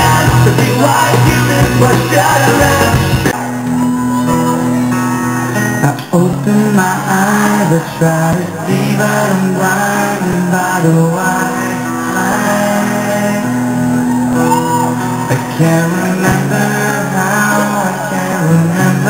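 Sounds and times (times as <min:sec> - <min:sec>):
crowd shouting: 0:00.0 - 0:05.6, 0:13.7 - 0:15.6
live rock band playing: 0:00.0 - 0:07.7, 0:12.4 - 0:19.0
person singing: 0:00.0 - 0:19.0.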